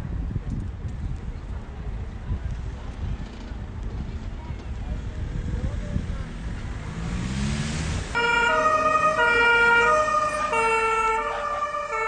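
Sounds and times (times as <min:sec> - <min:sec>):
low rumbling street noise: 0:00.0 - 0:12.0
fire engine two-tone siren: 0:08.2 - 0:12.0.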